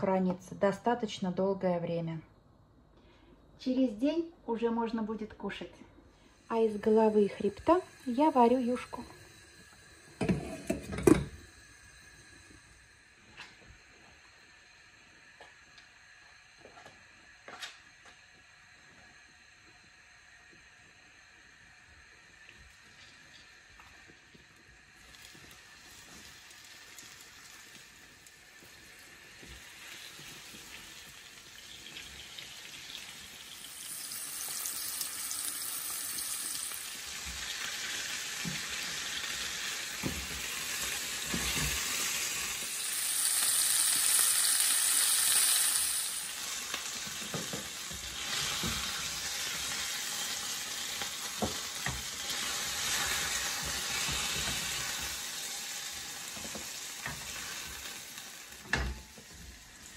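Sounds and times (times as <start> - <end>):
fish frying in hot oil: 22.7 - 59.9.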